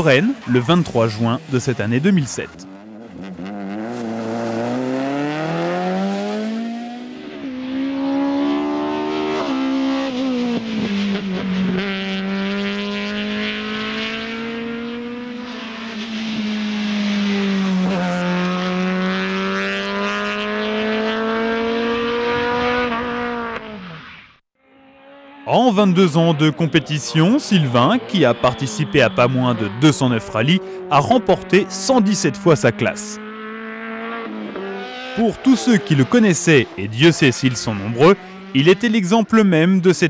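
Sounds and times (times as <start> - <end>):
rally car engine revving: 0.0 - 40.0.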